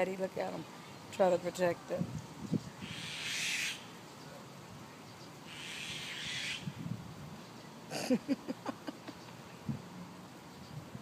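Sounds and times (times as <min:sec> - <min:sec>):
myna harsh hissing calls: 0:02.8 - 0:03.9, 0:05.5 - 0:06.8.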